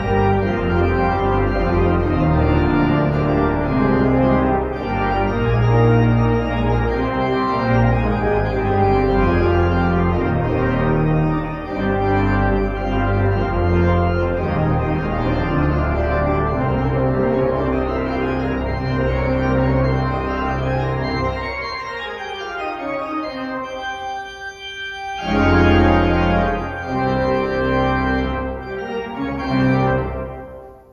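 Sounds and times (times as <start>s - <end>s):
church organ playing hymn: 0.0s - 30.9s.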